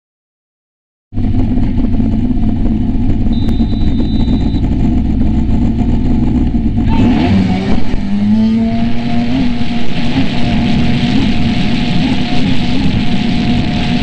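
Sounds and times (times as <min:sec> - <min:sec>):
jet ski engine revving: 0:01.2 - 0:14.0
loud rushing noise: 0:03.4 - 0:14.0.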